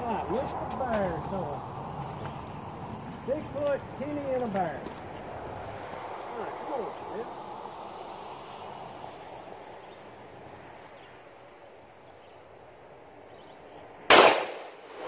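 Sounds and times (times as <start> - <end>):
loud pistol shot: 14.1 - 15.0.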